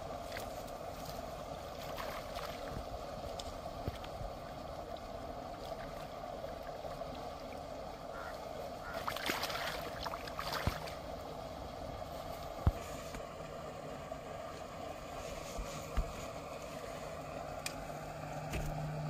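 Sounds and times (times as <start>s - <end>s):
water splashing and sloshing: 0.0s - 19.0s.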